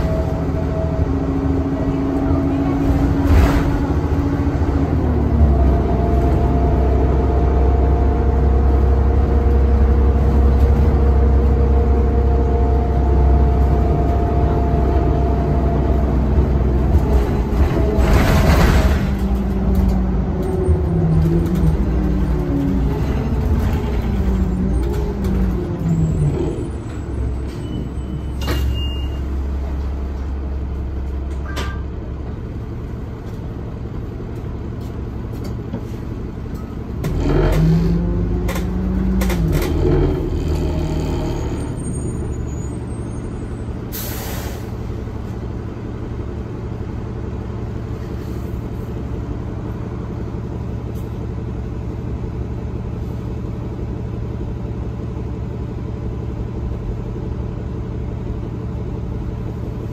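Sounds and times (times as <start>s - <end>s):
bus engine hum: 0.0s - 59.9s
road rumble: 0.0s - 59.9s
air hiss from bus: 43.9s - 44.9s.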